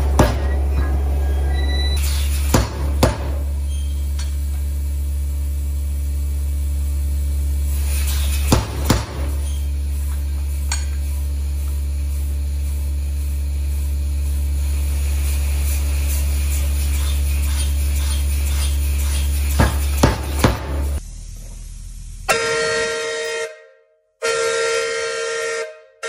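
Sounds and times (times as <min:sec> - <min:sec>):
hammer striking steel: 0:00.0 - 0:01.2, 0:02.1 - 0:03.6, 0:08.4 - 0:11.0, 0:17.6 - 0:21.0
machinery low hum: 0:00.0 - 0:23.3.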